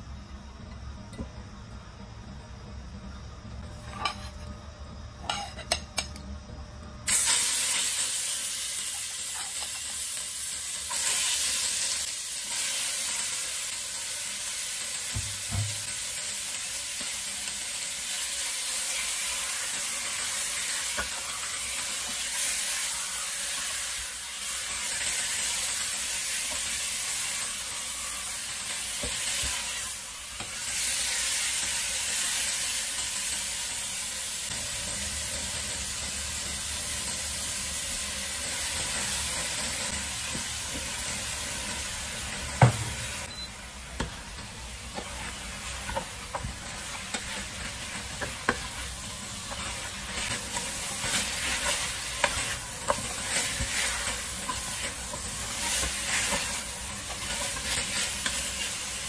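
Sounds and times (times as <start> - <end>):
chicken sizzling in oil: 7.1 - 59.0
spatula stirring in pot: 44.8 - 58.4.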